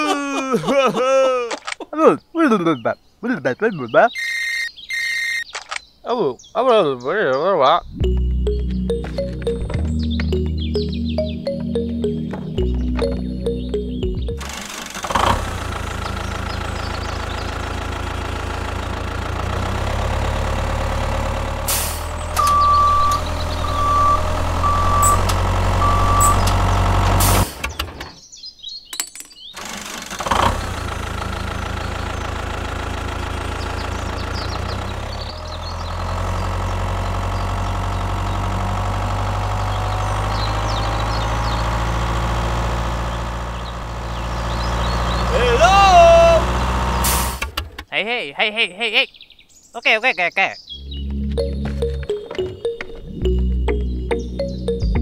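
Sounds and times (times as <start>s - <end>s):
heavy vehicle engine running: 7.8s - 28.0s, 29.6s - 47.8s, 50.8s - 55.0s
reversing beeps: 22.4s - 26.5s.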